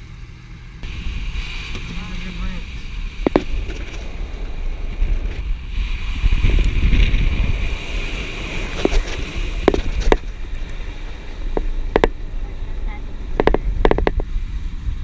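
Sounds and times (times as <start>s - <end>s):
low road rumble: 0.0s - 15.0s
wind buffeting: 0.8s - 15.0s
sharp taps: 3.2s - 3.8s, 11.5s - 12.2s, 13.4s - 14.2s.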